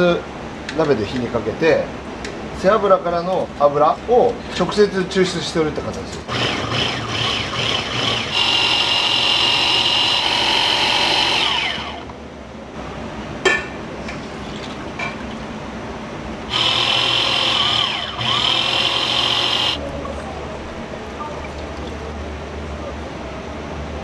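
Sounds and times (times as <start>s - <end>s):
electric motor whining: 6.3s - 12.1s, 16.5s - 19.8s.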